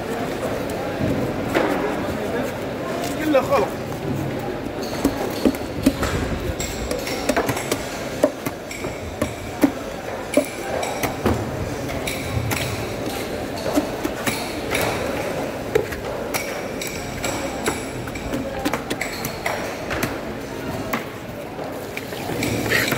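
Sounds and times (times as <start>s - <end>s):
knife chopping fish on wood: 7.0s - 11.2s.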